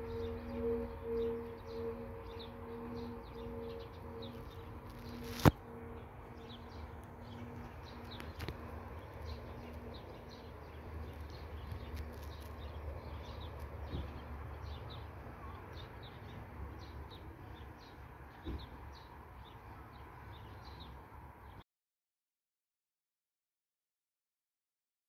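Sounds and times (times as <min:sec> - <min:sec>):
faint bell hum: 0:00.0 - 0:11.6
low steady rumble: 0:00.0 - 0:16.8
brief thump: 0:18.4 - 0:18.7.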